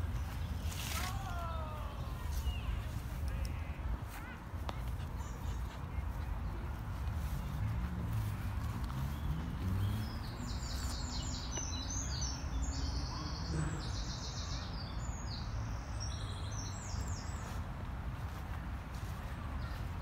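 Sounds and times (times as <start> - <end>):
songbirds chirping: 0.0 - 20.0.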